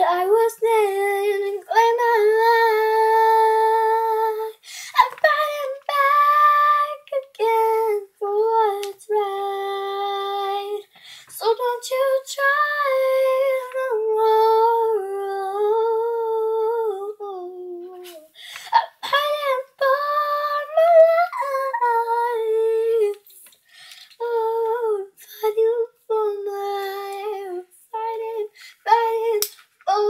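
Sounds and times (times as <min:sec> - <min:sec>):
girl singing unaccompanied: 0:00.0 - 0:30.0
short breaths: 0:04.6 - 0:05.0, 0:10.9 - 0:11.4, 0:18.2 - 0:18.8, 0:23.4 - 0:24.2, 0:28.5 - 0:28.8.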